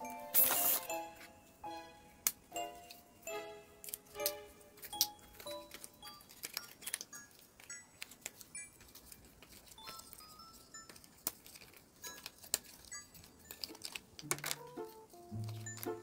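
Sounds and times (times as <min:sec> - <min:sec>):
soft background music: 0:00.0 - 0:16.0
packaging clicks and rustles: 0:03.8 - 0:16.0.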